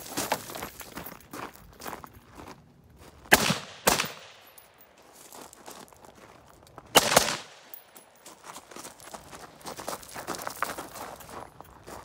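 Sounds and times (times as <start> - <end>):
footsteps on gravel: 0.0 - 12.0
rifle shots with echo: 3.3 - 4.6, 6.9 - 7.8.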